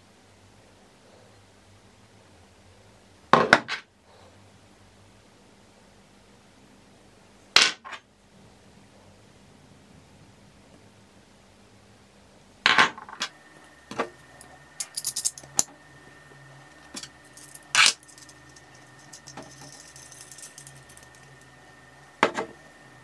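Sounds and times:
metal vise parts clinking: 14.4 - 15.7, 16.9 - 21.4.

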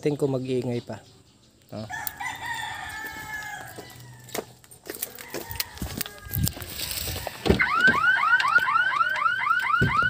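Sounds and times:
rooster crowing: 1.9 - 4.5, 5.1 - 7.4.

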